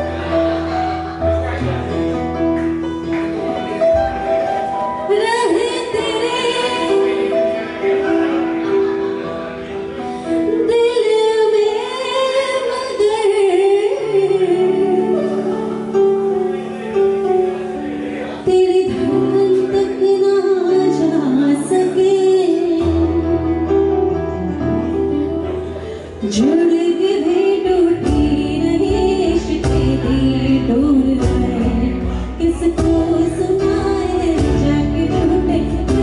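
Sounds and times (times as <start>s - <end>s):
keyboard chords: 0.0s - 36.0s
woman singing pop ballad: 5.1s - 7.2s, 10.5s - 15.4s, 18.4s - 23.8s, 26.2s - 36.0s.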